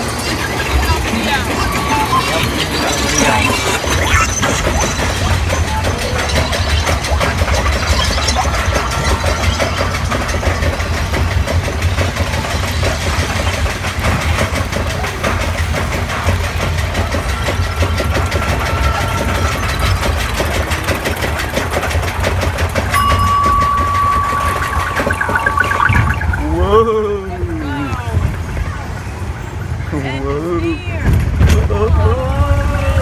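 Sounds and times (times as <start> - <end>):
roller coaster chain lift clatter: 0.0 - 26.4, 27.4 - 33.0
steady high tone: 22.9 - 27.1.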